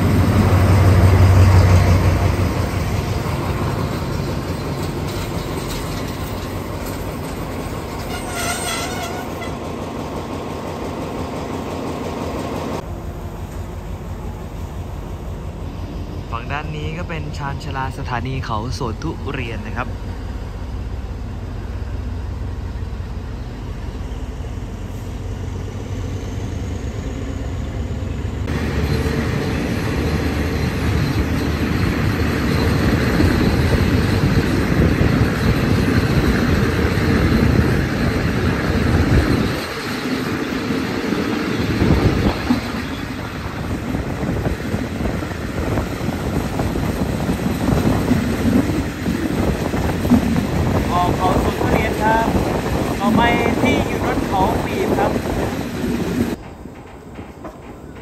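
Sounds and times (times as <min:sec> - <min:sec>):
train wheels rumbling on rails: 0:00.0 - 0:58.0
rush of wind: 0:28.4 - 0:58.0.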